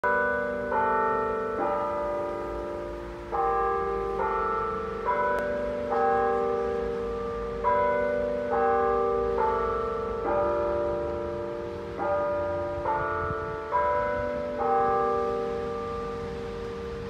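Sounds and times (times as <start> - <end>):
electronic carillon bell tune: 0.0 - 17.0.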